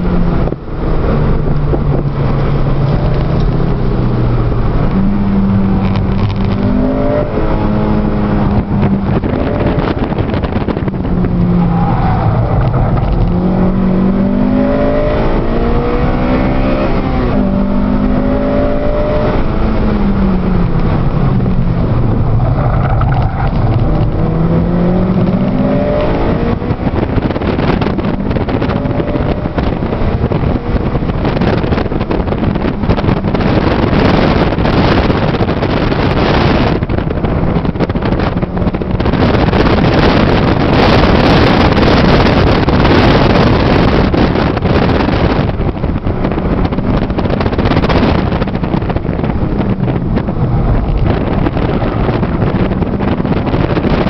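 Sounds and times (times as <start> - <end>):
car engine accelerating: 0.0 - 54.0
rushing wind and road noise: 0.0 - 54.0.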